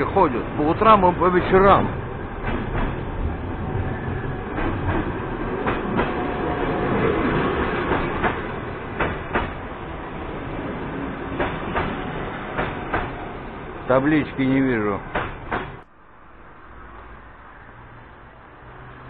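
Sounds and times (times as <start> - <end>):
train rumbling past: 0.0 - 19.0.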